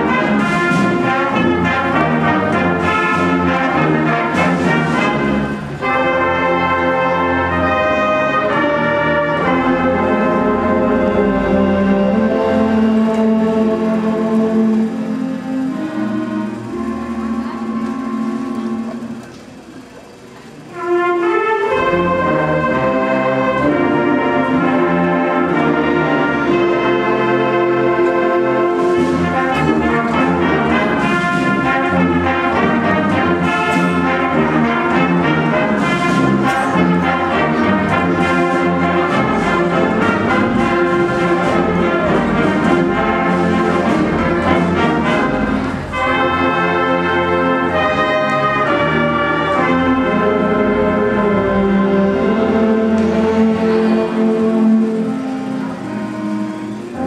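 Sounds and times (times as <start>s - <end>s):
concert band playing: 0.0s - 57.0s.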